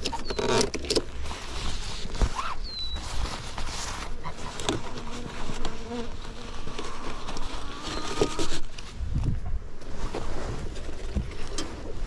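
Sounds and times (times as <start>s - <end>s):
honeybees buzzing: 4.0s - 8.6s.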